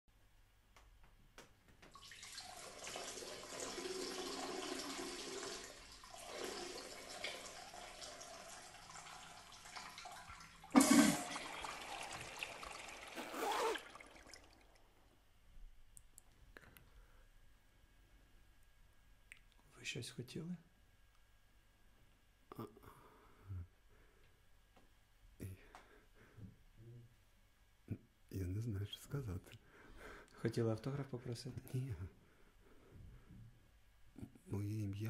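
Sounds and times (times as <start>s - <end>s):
toilet flushing: 1.9s - 15.0s.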